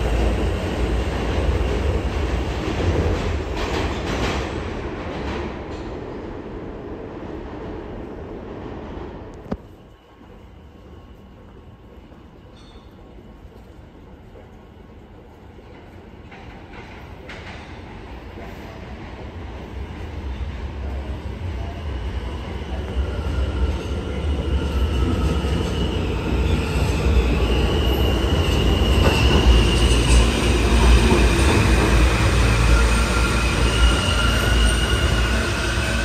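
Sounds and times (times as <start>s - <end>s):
subway train rumbling in tunnel: 0.0s - 36.0s
high wheel squeal: 25.2s - 36.0s.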